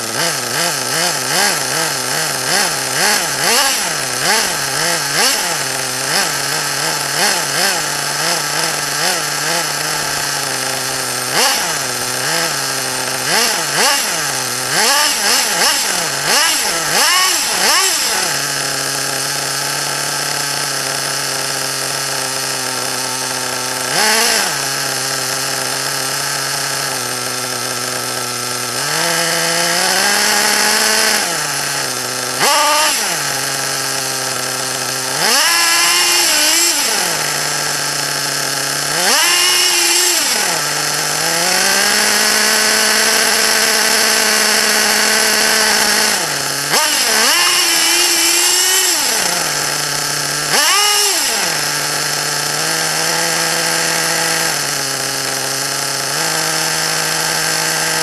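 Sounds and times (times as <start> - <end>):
small nitro engine revving: 0.0 - 58.0.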